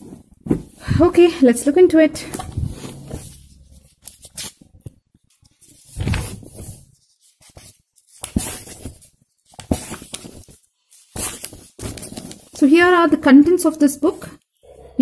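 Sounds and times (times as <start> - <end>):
book pages turning: 2.3 - 12.7.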